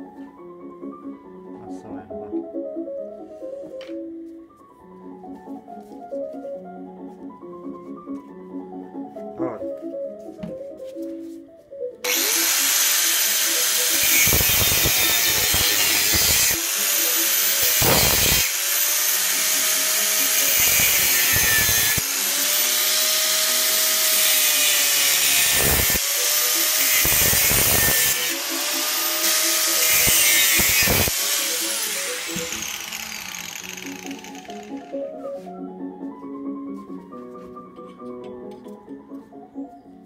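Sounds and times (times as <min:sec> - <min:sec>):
angle grinder cutting steel: 0:12.0 - 0:35.0.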